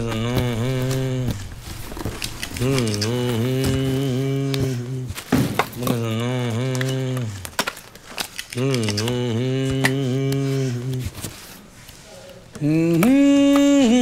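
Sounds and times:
man chanting: 0.0 - 1.7, 2.4 - 7.6, 8.6 - 11.4, 12.0 - 14.0
clicks and knocks of parts handled: 6.7 - 13.7.

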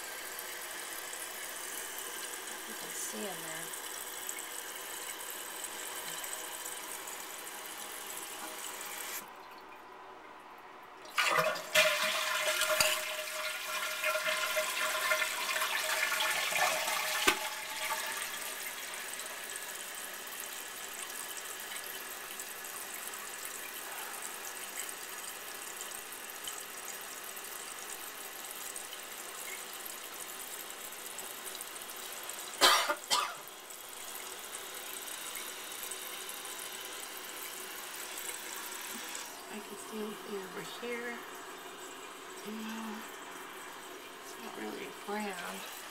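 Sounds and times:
toilet water rushing: 0.0 - 9.4, 11.0 - 45.9.

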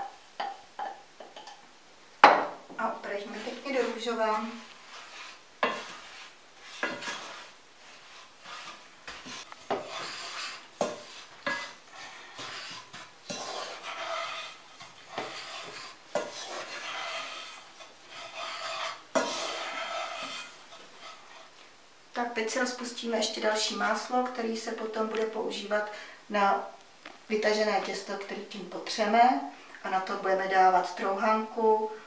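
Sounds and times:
spatula scraping breadcrumbs in pot: 2.8 - 21.6.

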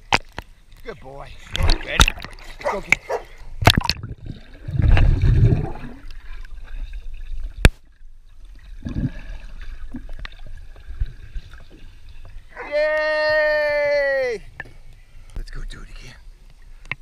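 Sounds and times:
muffled underwater splash: 1.4 - 11.9
underwater gurgling and bubbling: 3.6 - 7.6, 8.4 - 12.1.

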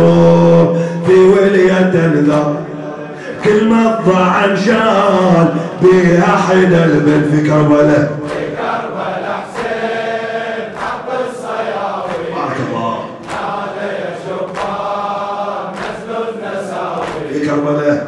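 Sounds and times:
congregation chanting: 0.0 - 18.0
chest-beating slaps: 8.2 - 8.7, 10.7 - 11.2, 12.0 - 13.7, 14.4 - 14.9, 15.7 - 16.1, 17.0 - 17.3.

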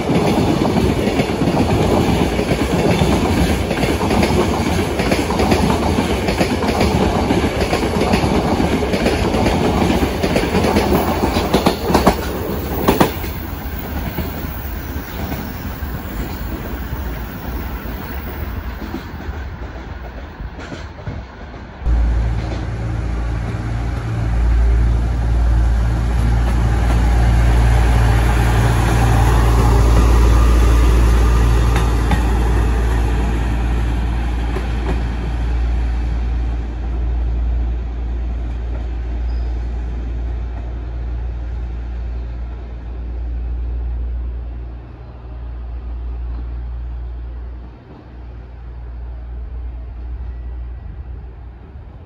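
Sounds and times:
freight train rolling: 0.0 - 52.0
railcar passing with low hum: 0.0 - 52.0.

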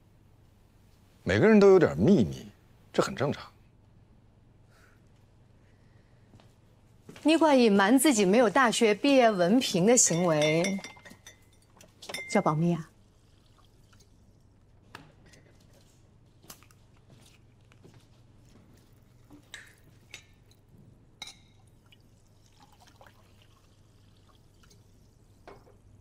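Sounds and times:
low room hum: 0.0 - 26.0
glass bottles and kitchenware clinking: 9.9 - 12.8.

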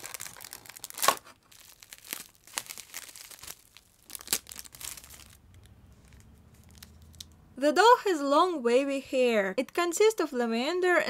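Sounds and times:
plastic bag crinkling: 0.0 - 7.3.

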